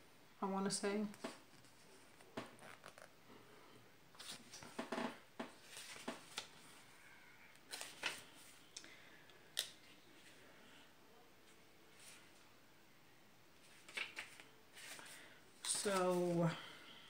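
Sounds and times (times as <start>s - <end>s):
paper pages rustling: 1.1s - 3.1s, 4.2s - 4.8s, 5.5s - 6.9s, 7.6s - 8.6s, 13.6s - 16.4s.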